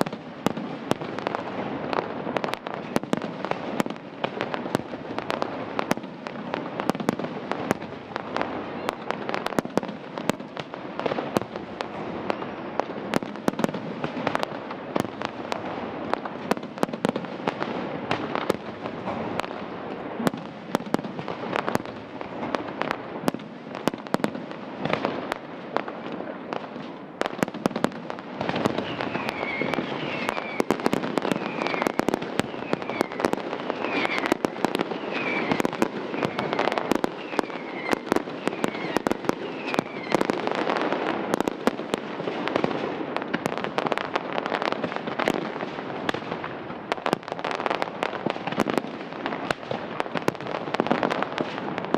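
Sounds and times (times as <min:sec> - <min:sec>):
fireworks bangs and crackling: 0:00.0 - 0:51.9
falling firework whistles: 0:28.4 - 0:41.4.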